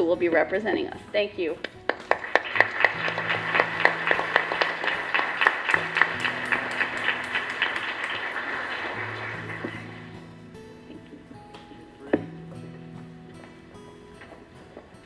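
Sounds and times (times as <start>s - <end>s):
soft background music: 0.0s - 15.0s
audience applauding: 1.9s - 10.2s.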